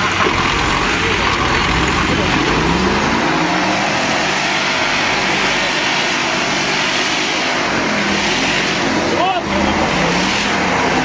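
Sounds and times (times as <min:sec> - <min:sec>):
vehicle engines running hard: 0:00.0 - 0:11.0
steady rushing noise: 0:00.5 - 0:11.0.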